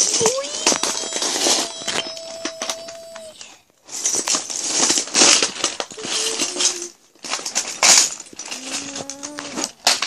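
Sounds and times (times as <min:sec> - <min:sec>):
plastic toy pieces clattering: 0:00.0 - 0:10.0.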